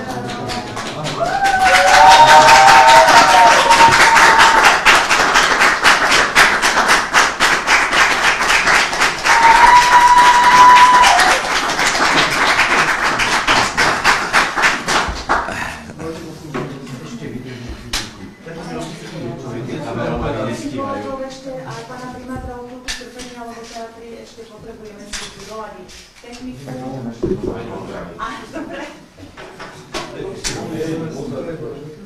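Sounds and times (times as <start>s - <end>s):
crowd clapping rhythmically: 0.0s - 15.9s
crowd cheering: 1.0s - 5.0s, 9.2s - 11.6s.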